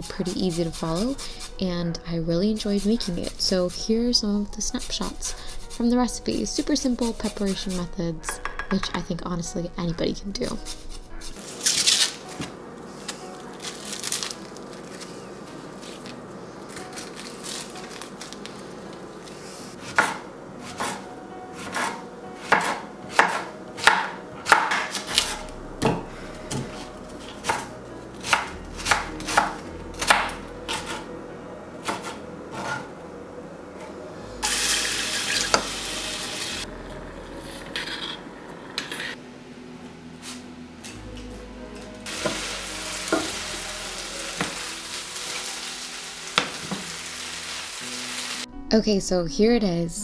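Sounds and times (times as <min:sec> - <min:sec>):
knife chopping on cutting board: 0:19.8 - 0:21.0, 0:21.6 - 0:26.8, 0:27.4 - 0:31.0, 0:31.8 - 0:32.8.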